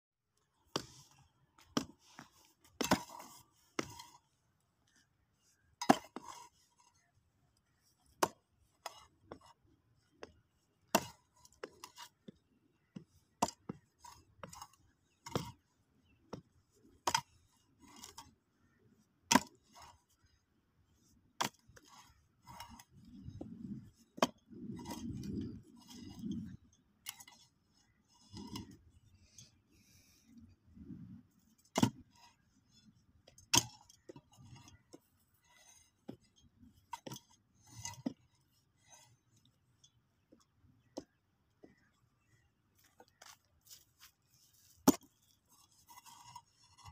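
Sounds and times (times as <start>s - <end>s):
hoe striking hard dry soil: 2.7s - 4.2s, 5.8s - 6.5s, 10.8s - 12.2s, 19.2s - 19.9s, 31.6s - 32.2s, 33.2s - 34.8s, 44.7s - 45.2s
gritty scrapes of earth: 21.4s - 39.4s, 42.3s - 46.9s.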